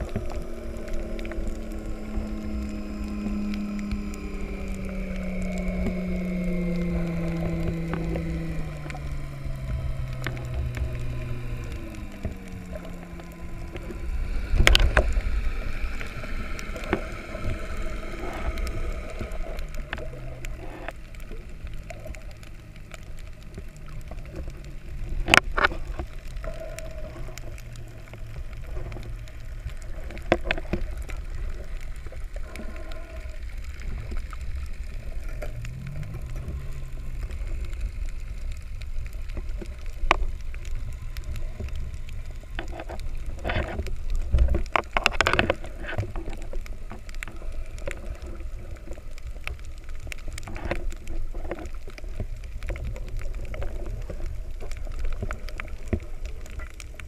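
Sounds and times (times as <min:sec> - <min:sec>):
low rumble of moving water: 0:00.0 - 0:57.0.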